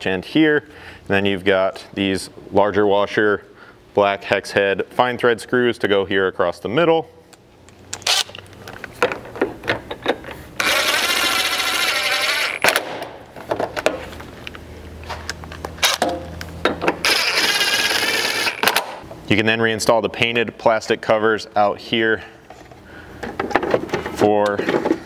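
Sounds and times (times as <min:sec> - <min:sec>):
tool and screws clicking: 0:07.9 - 0:08.9, 0:17.0 - 0:19.0
impact driver running: 0:10.6 - 0:13.0, 0:17.0 - 0:19.0.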